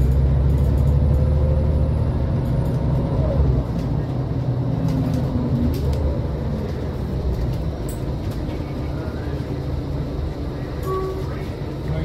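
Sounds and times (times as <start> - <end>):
bus engine and road rumble: 0.0 - 12.0.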